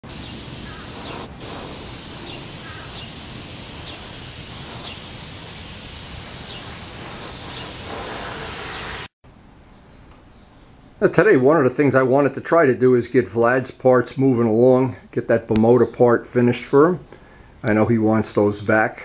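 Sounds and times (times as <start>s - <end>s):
spray paint hissing: 0.0s - 9.2s.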